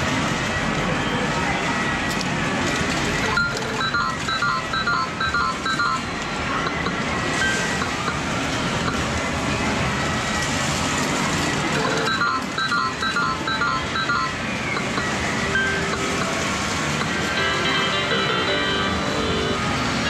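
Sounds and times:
game machines noise: 0.0 - 20.0
electronic beeping notes: 3.3 - 9.1, 11.9 - 20.0.

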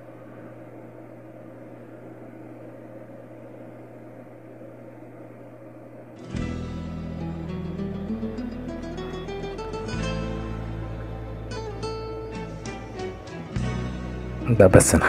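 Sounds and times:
background hum and hiss: 0.0 - 15.0
acoustic guitar music: 6.2 - 15.0.

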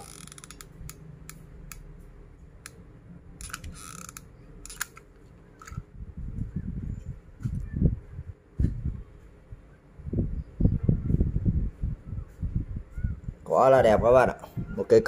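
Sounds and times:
plastic straw pieces clicking: 0.0 - 1.8.

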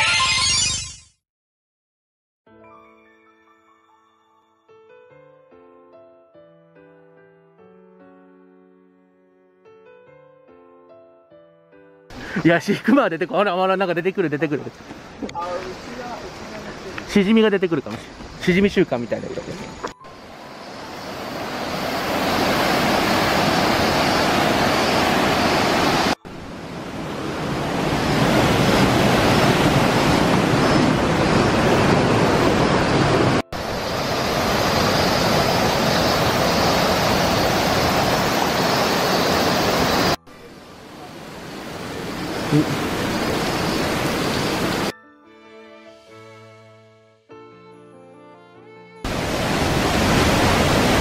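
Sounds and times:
river water rushing over rocks: 20.2 - 44.9, 49.1 - 51.0.

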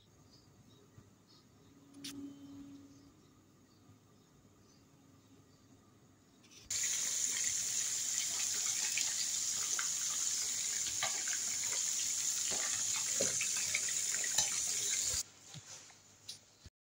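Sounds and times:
curry boiling in a pot: 6.7 - 15.2.

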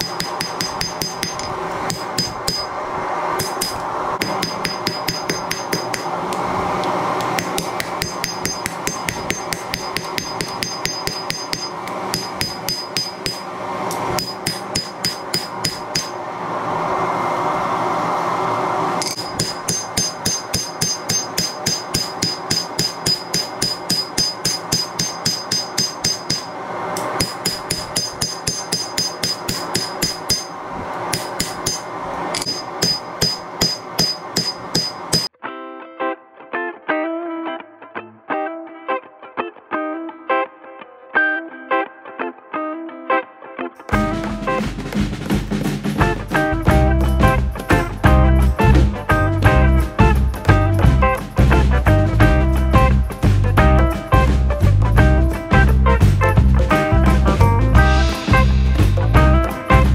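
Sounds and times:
hammer striking steel on anvil: 0.0 - 2.8, 3.4 - 6.2, 7.2 - 16.2, 19.0 - 35.3.

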